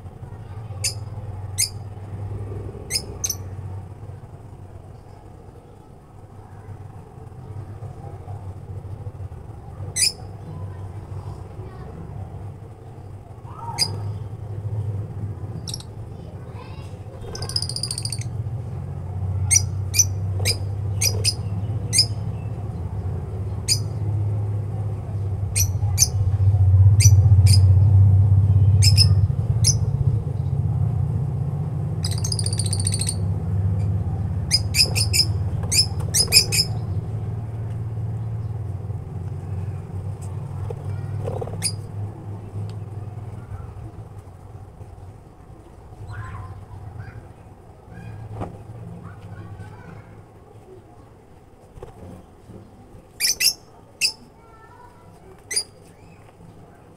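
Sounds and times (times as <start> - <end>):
steady low hum: 0.0 - 54.0
lovebirds chirping: 32.0 - 33.2, 33.8 - 37.2, 53.2 - 54.2.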